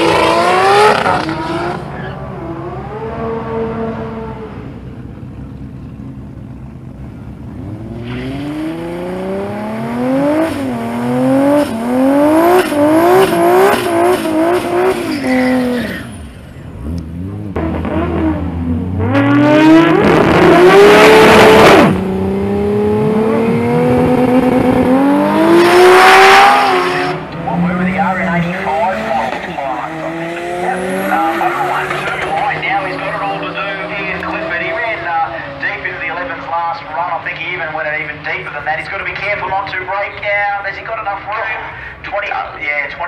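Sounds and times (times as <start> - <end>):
car engine revving: 0.0 - 40.3
tyre squeal: 15.0 - 16.6.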